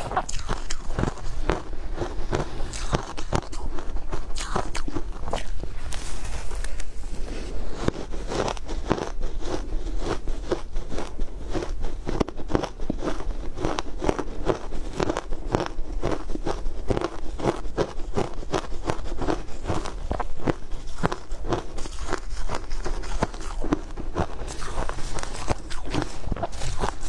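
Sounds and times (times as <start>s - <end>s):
chewing crunchy shaved ice: 0.0s - 27.0s.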